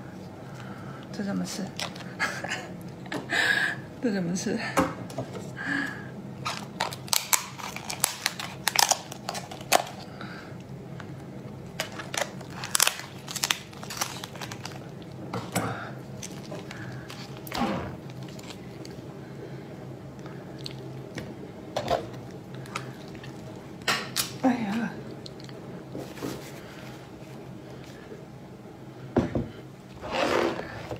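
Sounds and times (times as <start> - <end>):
lobster shell cracking: 6.4 - 10.1, 11.7 - 15.1.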